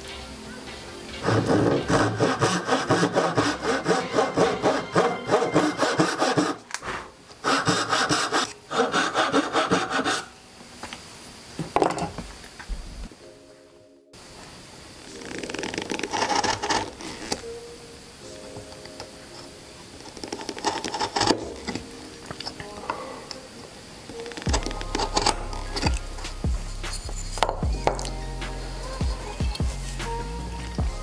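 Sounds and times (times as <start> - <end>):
hand saw cutting wood: 1.2 - 6.7, 7.4 - 10.3.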